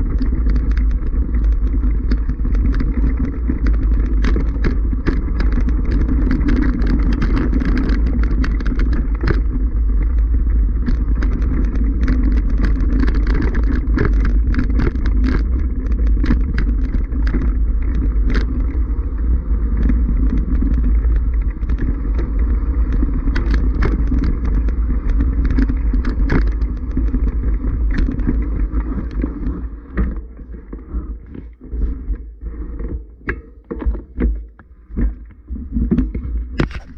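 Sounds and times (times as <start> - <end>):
bike rattling: 0.0 - 36.9
wind rumble on microphone: 0.0 - 36.9
tyres crunching over stones: 36.1 - 36.9.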